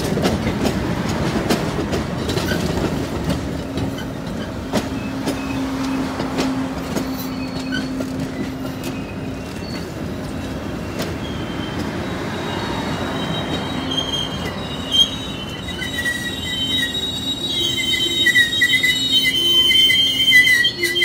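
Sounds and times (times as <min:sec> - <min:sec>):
train cars rumbling on rails: 0:00.0 - 0:21.0
high-pitched wheel squeal: 0:06.8 - 0:21.0.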